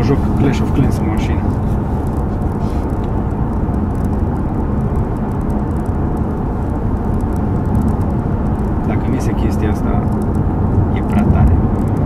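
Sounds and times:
road and engine rumble in car: 0.0s - 12.0s.

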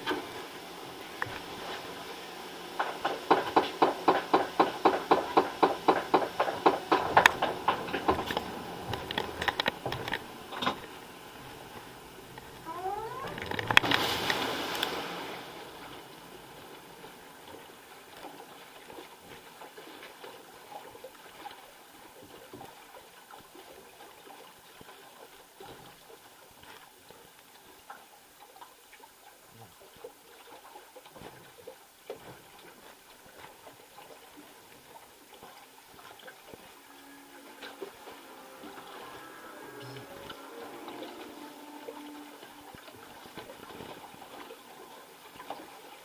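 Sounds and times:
faint trickling water: 0.0s - 3.4s, 4.7s - 46.0s
water rushing and splashing: 0.0s - 46.0s
small knocks and ticks: 2.8s - 10.9s.

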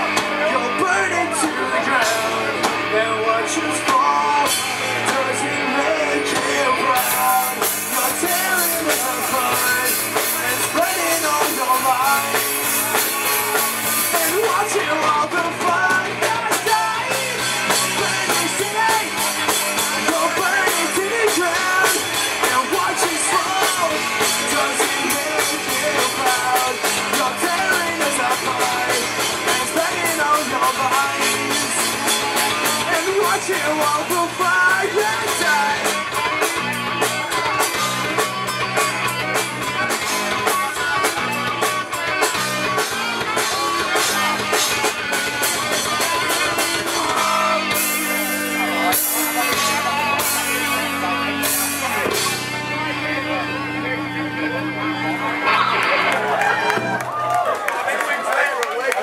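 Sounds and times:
rock band playing live: 0.0s - 59.0s
fast drum beat: 6.3s - 52.6s.

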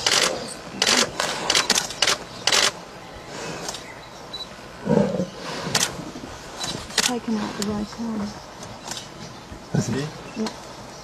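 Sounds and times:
deep lion growl: 4.8s - 6.2s
lion snarling: 4.8s - 6.2s.

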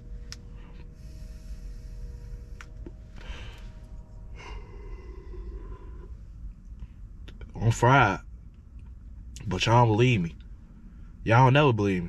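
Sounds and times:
person exhaling: 1.0s - 6.2s.

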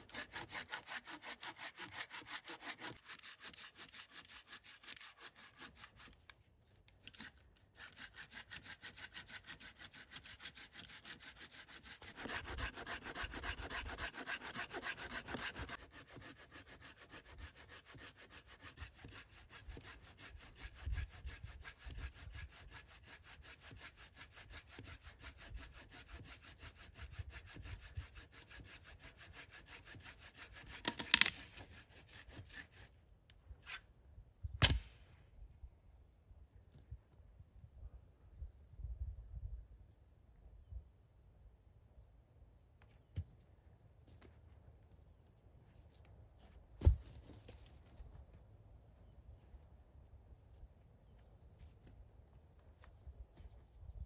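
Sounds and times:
hand saw cutting wood: 0.0s - 6.4s, 7.0s - 33.0s.

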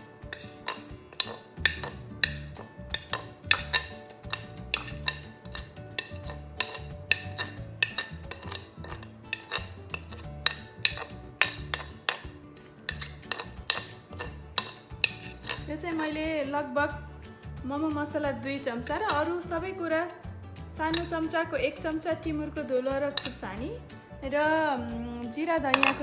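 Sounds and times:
metal spoon clinking on plate: 0.0s - 16.2s, 20.9s - 21.2s, 23.1s - 23.4s
background music: 0.0s - 26.0s.

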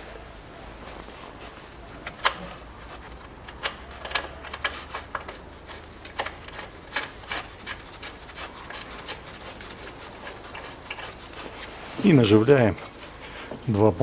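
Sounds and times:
gloved hands rubbing: 4.7s - 13.5s.

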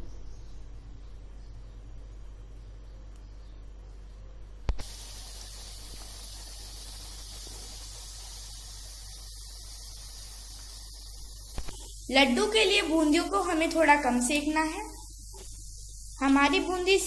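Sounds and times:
batter frying with sizzle: 4.8s - 17.0s.

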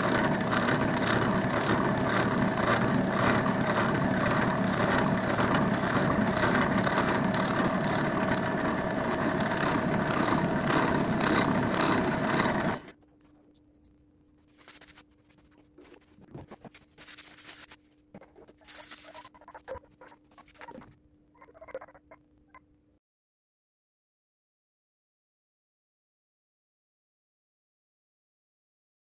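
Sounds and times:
high regular ticking: 0.0s - 12.9s
milling machine humming: 0.0s - 12.9s.

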